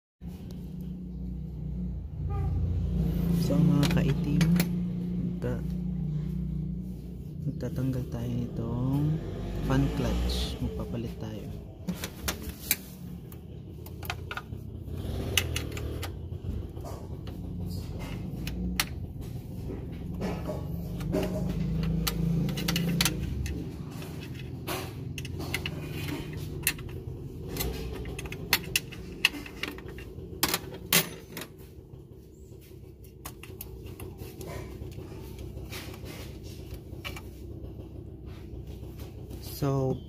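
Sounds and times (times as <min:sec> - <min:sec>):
tools clicking and tapping metal: 0:03.6 - 0:05.0, 0:15.4 - 0:31.6.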